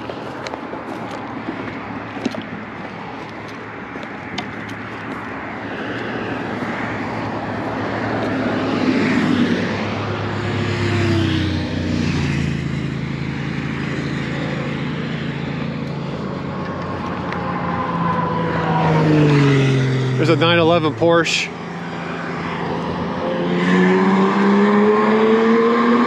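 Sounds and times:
cars passing on highway: 0.0 - 26.0
vehicle engine hum: 0.0 - 26.0.

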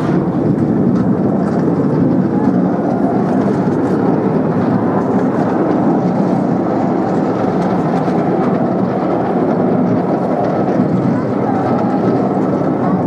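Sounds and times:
miniature train rumbling on track: 0.0 - 13.0.

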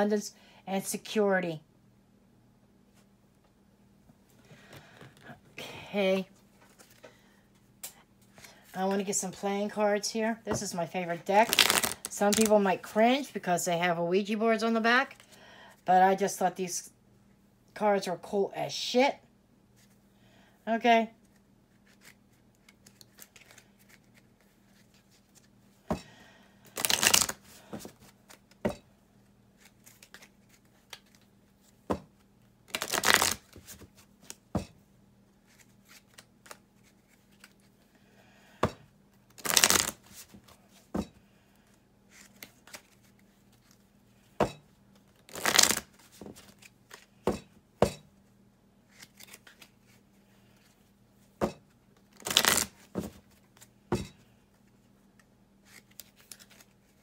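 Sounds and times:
playing cards being shuffled: 11.4 - 12.6, 21.2 - 25.5, 26.7 - 28.6, 29.6 - 34.4, 35.4 - 37.7, 39.3 - 40.8, 42.1 - 43.8, 45.0 - 47.1, 48.9 - 50.0, 52.0 - 53.7, 55.6 - 57.0.

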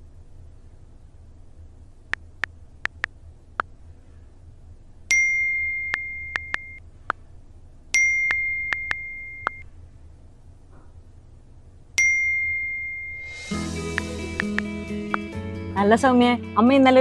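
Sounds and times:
phone keyboard tap clicks: 2.9 - 3.1, 6.0 - 6.8
notification ding: 8.0 - 9.6.

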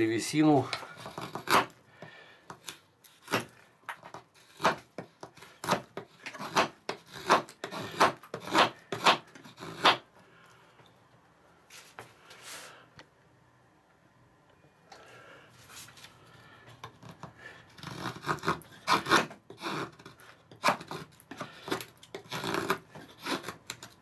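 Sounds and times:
knife scraping wood: 0.7 - 1.8, 2.5 - 10.0, 16.9 - 24.0.

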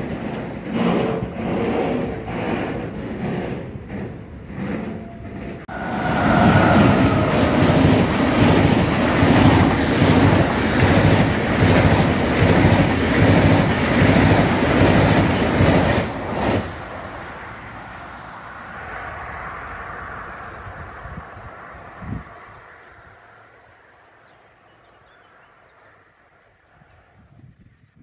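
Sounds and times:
wheels clattering over rails: 0.0 - 17.3
train passing: 0.0 - 27.9
distant rumble: 3.8 - 23.7.

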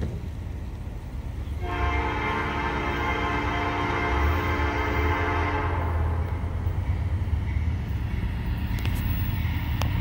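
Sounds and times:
diesel locomotive rumble: 0.0 - 10.0
locomotive horn blasts: 1.6 - 6.2.

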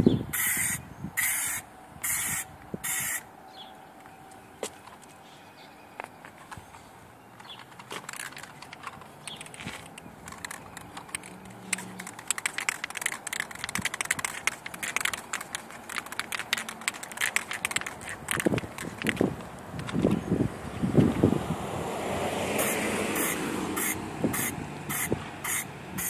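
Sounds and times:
spray can ball rattling: 7.7 - 20.0, 22.6 - 25.6.

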